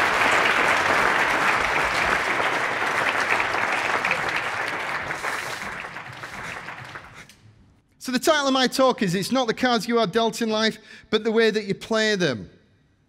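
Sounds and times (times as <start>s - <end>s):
large audience applauding: 0.0s - 7.3s.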